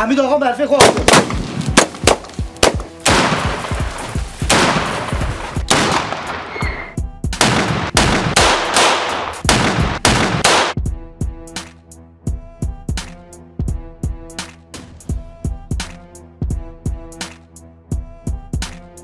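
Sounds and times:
gunshots echoing: 0.8s - 10.8s.

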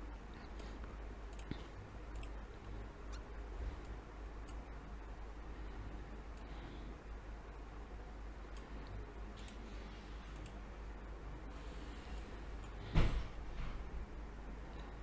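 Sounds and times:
low steady hum: 0.0s - 15.0s
loud thump: 12.9s - 13.8s.

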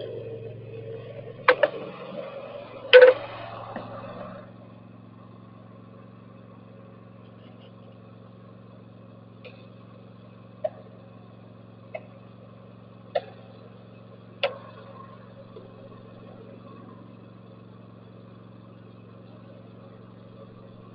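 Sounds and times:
mower engine idling: 0.0s - 20.9s.

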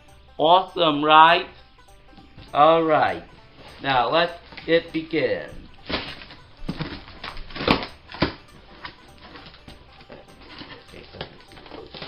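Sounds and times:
cardboard flaps scraping: 5.8s - 12.0s
packing tape tearing: 5.8s - 12.0s
sharp cardboard cracks: 5.8s - 12.0s.

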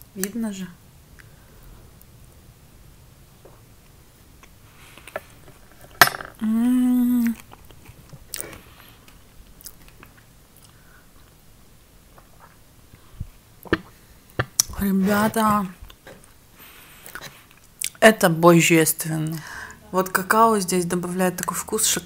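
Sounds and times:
woman humming mmm: 6.4s - 7.4s
soft chewing and mouth clicks: 7.1s - 11.4s, 12.1s - 14.8s, 17.0s - 18.0s.

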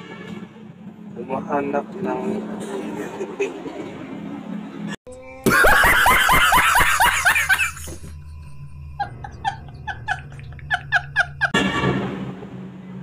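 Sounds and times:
man laughing hard: 5.4s - 8.2s, 9.0s - 11.6s.

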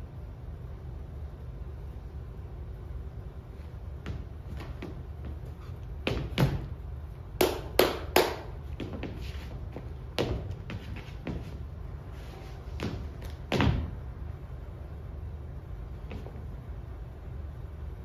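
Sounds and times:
steady low hum: 0.0s - 18.0s
shoes stamping on stage floor: 4.0s - 14.0s.

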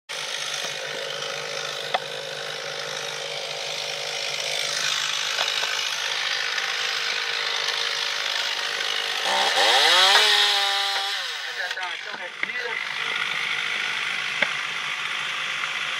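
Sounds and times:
chainsaw idling and revving: 0.1s - 15.9s.

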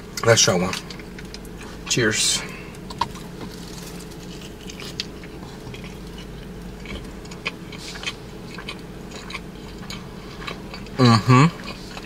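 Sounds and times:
crunches of chewing chicken: 2.4s - 12.0s
wet chewing sounds: 2.7s - 12.0s.

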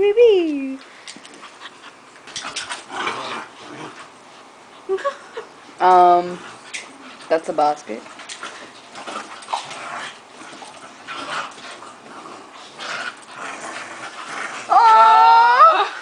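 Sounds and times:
dogs scuffling: 1.0s - 4.5s, 5.7s - 14.6s.

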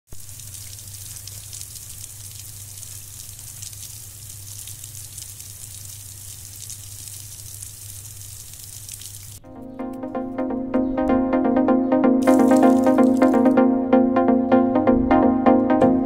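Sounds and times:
water jetting from pipe leak: 0.1s - 9.4s, 12.2s - 13.6s.

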